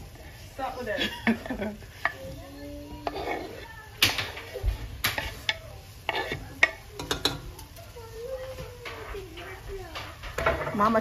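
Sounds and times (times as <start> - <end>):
utensil scraping on wooden board: 3.0 - 3.7, 5.1 - 6.6.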